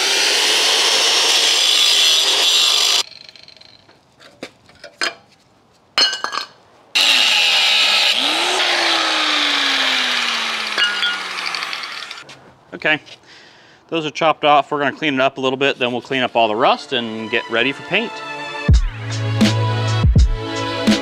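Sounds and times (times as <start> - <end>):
angle grinder cutting steel: 0.0 - 4.0, 7.0 - 12.2.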